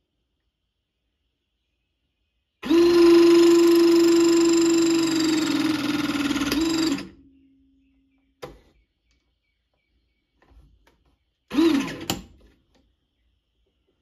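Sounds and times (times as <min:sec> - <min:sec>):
hydraulic crimper motor running: 0:02.6 - 0:07.2, 0:11.5 - 0:12.3.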